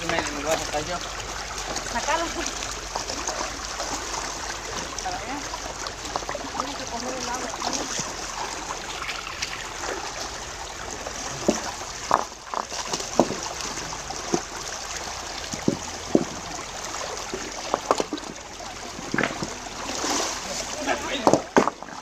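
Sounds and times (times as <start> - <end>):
stream flowing over rocks: 0.0 - 22.0
water stirred by hands and feet: 0.0 - 22.0
stones knocking in water: 11.1 - 14.7, 15.4 - 22.0.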